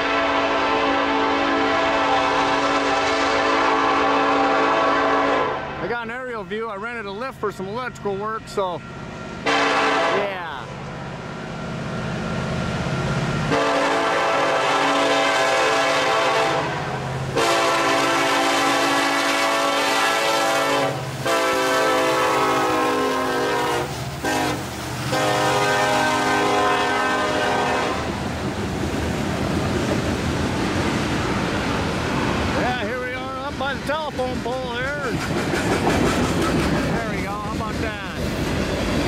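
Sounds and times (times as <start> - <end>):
locomotive air horn blasts: 0.0 - 5.8, 9.4 - 10.4, 13.5 - 28.2
locomotive engines running: 5.8 - 9.5, 28.1 - 39.0
freight cars rumbling and rattling: 23.9 - 39.0.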